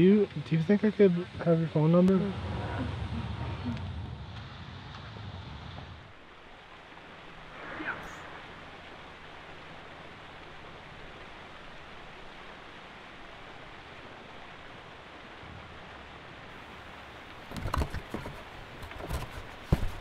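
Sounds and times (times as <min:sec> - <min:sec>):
outdoor background hiss: 0:00.0 - 0:20.0
cardboard box tearing: 0:17.5 - 0:20.0.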